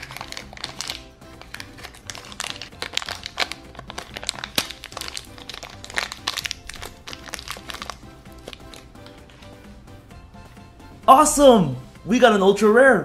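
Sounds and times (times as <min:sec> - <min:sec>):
plastic wrapper crinkling: 0:00.0 - 0:09.4
background music: 0:00.0 - 0:13.0.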